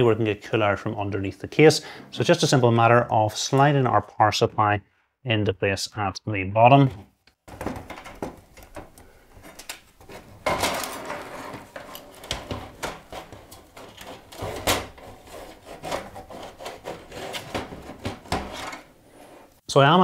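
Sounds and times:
power supply scraping against pc case: 0:10.1 - 0:19.6.

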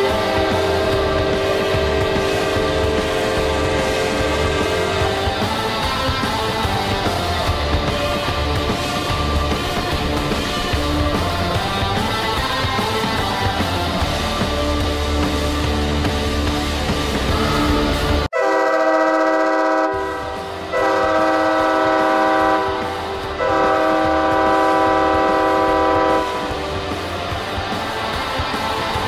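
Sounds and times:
arena goal horn blasts: 0:00.0 - 0:05.2, 0:17.3 - 0:26.6
heavy rock music: 0:00.0 - 0:29.0.

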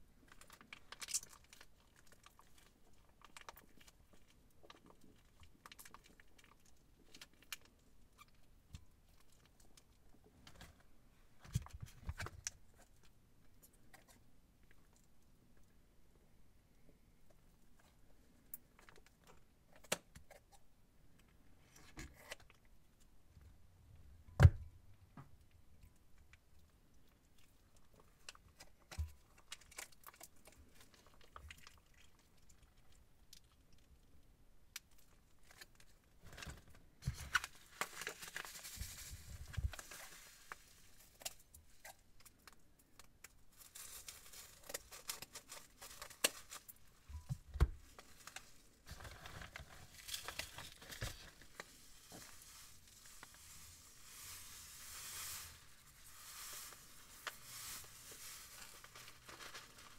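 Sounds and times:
plastic bags crinkling: 0:36.3 - 0:42.0, 0:43.5 - 0:59.9.

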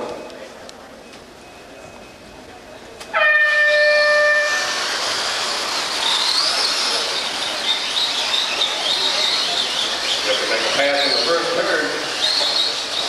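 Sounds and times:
high motor whine: 0:03.1 - 0:13.0
rc trucks hissing on clay: 0:04.4 - 0:13.0.

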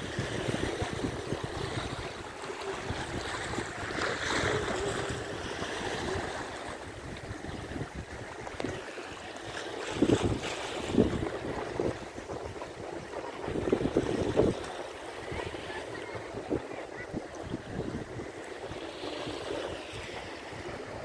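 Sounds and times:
wind buffeting microphone: 0:00.0 - 0:08.9, 0:09.8 - 0:21.0
waves washing against rocks: 0:00.0 - 0:21.0.

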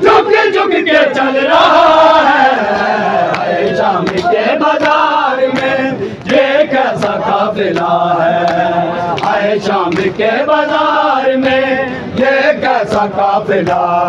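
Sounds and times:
men chanting in unison: 0:00.0 - 0:14.0
hands slapping bare chests: 0:03.3 - 0:10.2.

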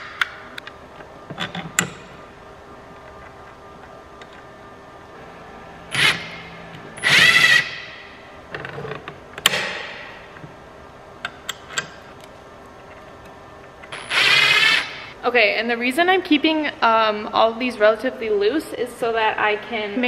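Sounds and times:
cordless drill running: 0:05.2 - 0:08.0, 0:14.0 - 0:15.0.

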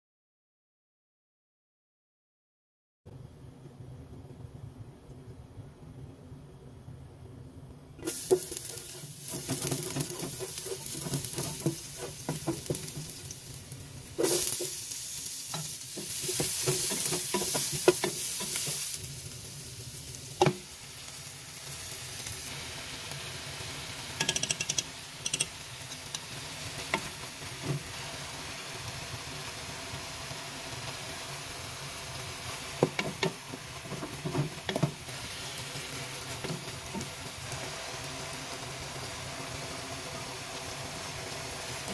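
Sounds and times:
chicken sizzling in oil: 0:08.0 - 0:41.9
wooden spatula scraping pan: 0:08.1 - 0:13.3, 0:16.0 - 0:18.8.

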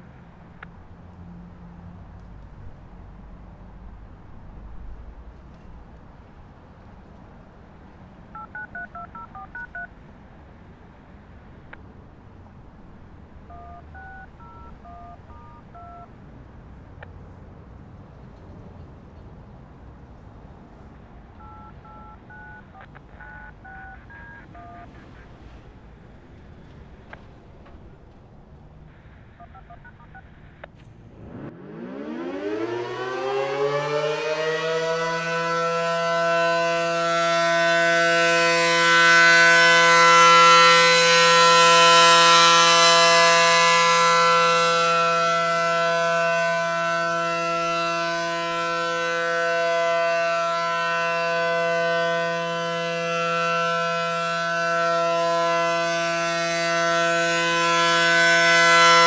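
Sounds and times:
rotating warning siren: 0:31.2 - 0:59.0.

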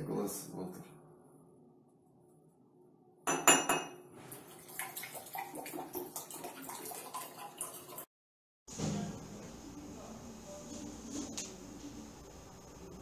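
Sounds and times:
liquid pouring: 0:04.3 - 0:08.1.

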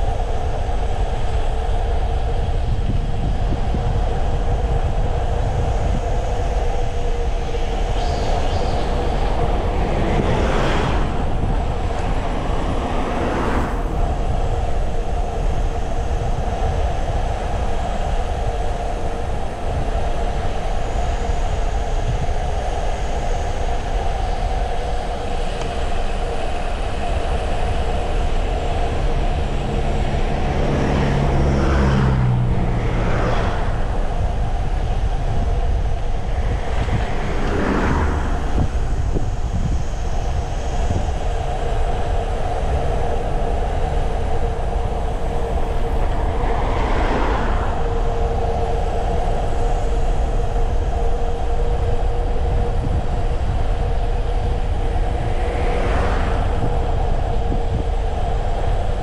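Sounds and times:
tyres humming on road: 0:00.0 - 0:59.0
wind rushing over microphone: 0:00.0 - 0:59.0.

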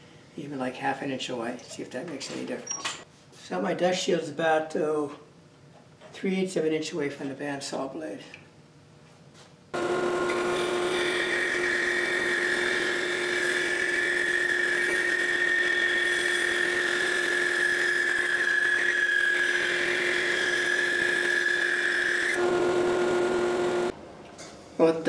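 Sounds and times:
band saw cutting board: 0:09.8 - 0:23.9
dust collection vacuum whine: 0:09.8 - 0:24.0.

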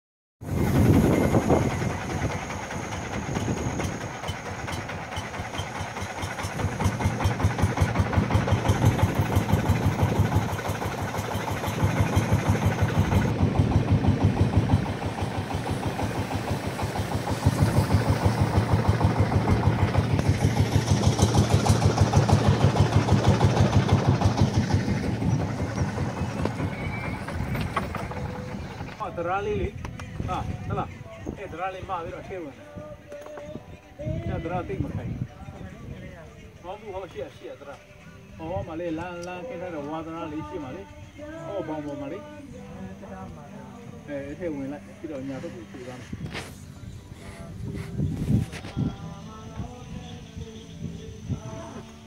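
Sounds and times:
boat engine pulsing: 0:00.4 - 0:30.8.

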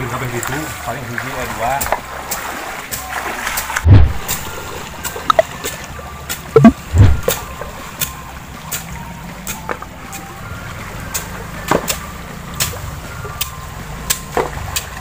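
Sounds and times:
splashes from wading feet: 0:00.0 - 0:09.6
stream water running: 0:00.0 - 0:15.0.

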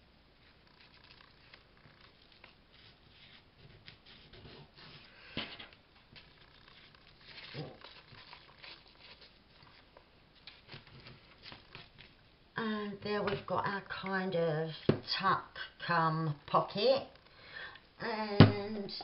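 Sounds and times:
paper and fabric rustling: 0:00.4 - 0:12.3.

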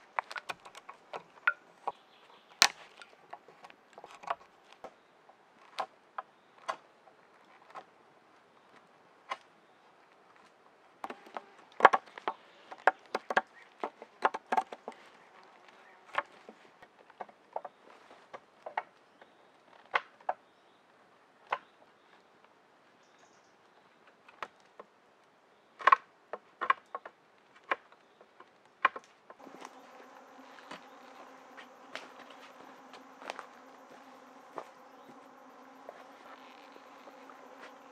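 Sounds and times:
insect buzzing: 0:11.0 - 0:11.7, 0:29.4 - 0:37.9.

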